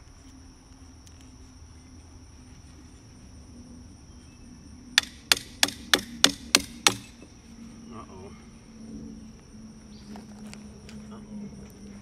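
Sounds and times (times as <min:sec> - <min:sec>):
hammer striking tool on wood: 0:05.0 - 0:07.2.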